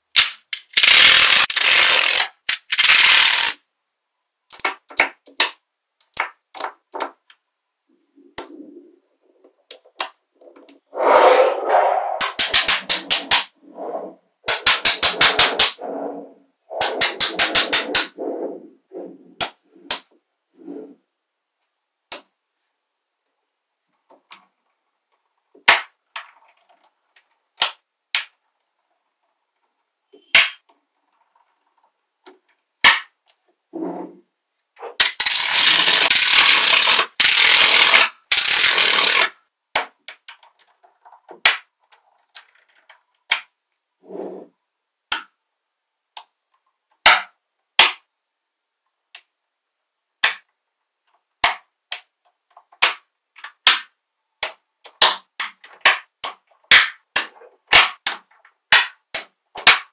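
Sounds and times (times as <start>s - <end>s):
magnetic balls snapping: 4.5s - 7.4s, 8.3s - 8.8s, 12.1s - 16.0s, 16.7s - 18.4s, 19.4s - 20.2s, 22.1s - 22.3s, 27.1s - 28.4s, 34.9s - 40.7s, 43.2s - 43.6s
magnetic balls clattering rattle: 34.8s - 39.3s.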